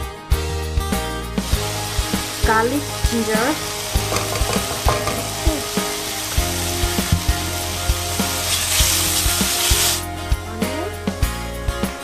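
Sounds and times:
garlic and ginger sizzling in oil: 1.4 - 10.1.

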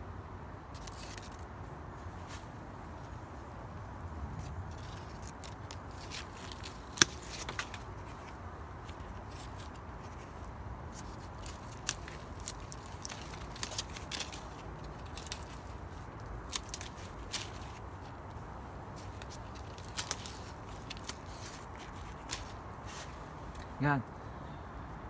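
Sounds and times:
pruning shears snipping: 4.8 - 9.8, 10.9 - 23.7.

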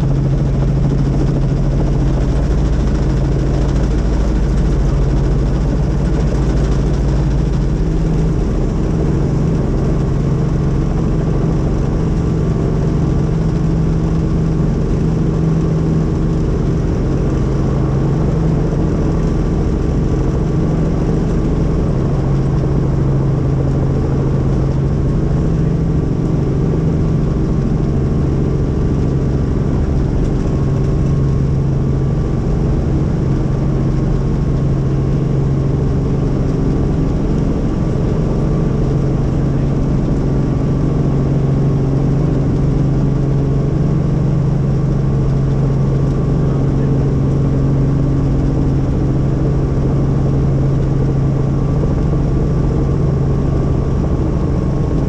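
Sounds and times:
helicopter engine and rotor: 0.0 - 55.0.

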